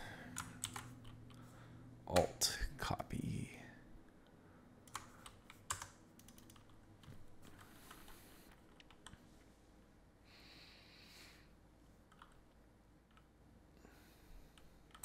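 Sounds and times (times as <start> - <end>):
keyboard and mouse clicks: 0.4 - 1.2, 4.9 - 9.2, 12.1 - 13.3, 14.5 - 15.0.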